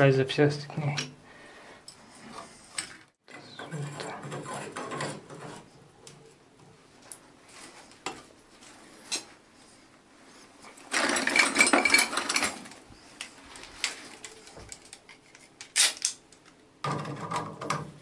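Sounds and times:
tools rattling: 10.6 - 13.1.

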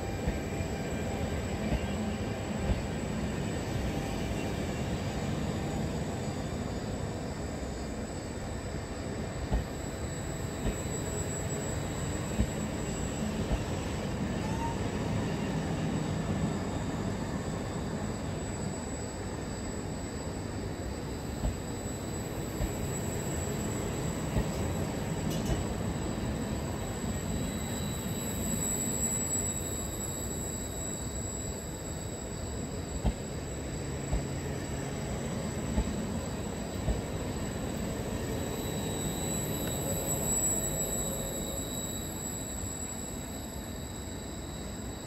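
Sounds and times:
train wheels rumbling on rail: 0.0 - 45.0
high wheel squeal: 9.0 - 45.0.

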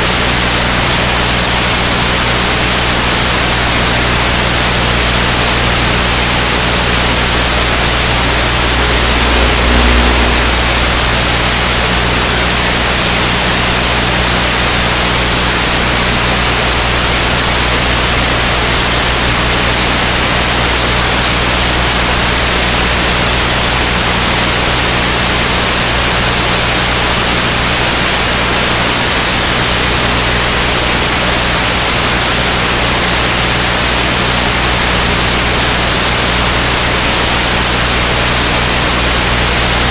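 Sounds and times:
loud static hiss: 0.0 - 39.9
faint low hum: 7.1 - 13.8
low rumble: 7.6 - 12.3.

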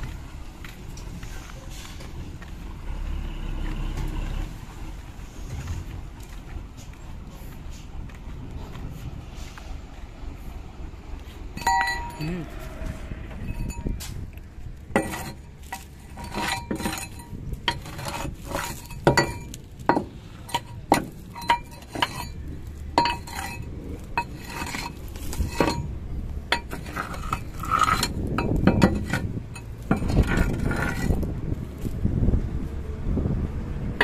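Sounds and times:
steel bar clanking on metal: 11.6 - 12.3, 14.9 - 25.9, 26.5 - 31.3.

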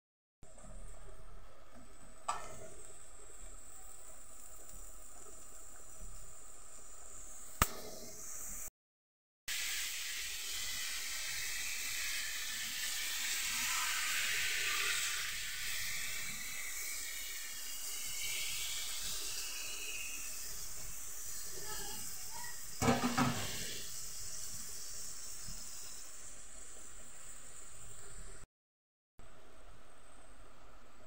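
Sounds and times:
broth pouring into a pan: 2.2 - 7.6, 9.5 - 28.4.

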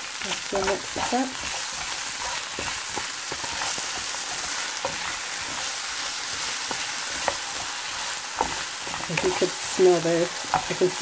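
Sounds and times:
vegetables sizzling in oil: 0.0 - 11.0
spatula scraping a pan: 0.2 - 11.0.

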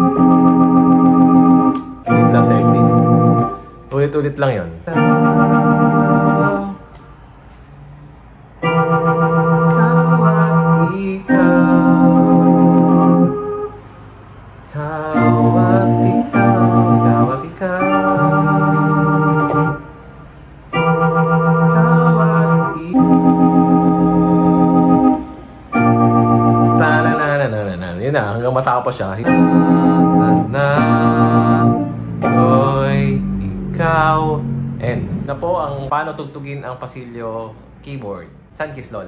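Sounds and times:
synthesizer organ chords: 0.0 - 4.3, 4.9 - 7.0, 8.6 - 13.8, 14.7 - 27.6, 29.2 - 35.9.

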